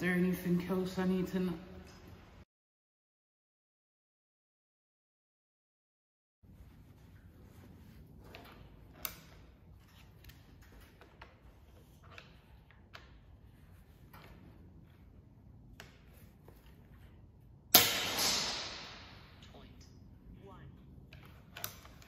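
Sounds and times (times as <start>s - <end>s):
low room hum: 18.7s - 22.0s.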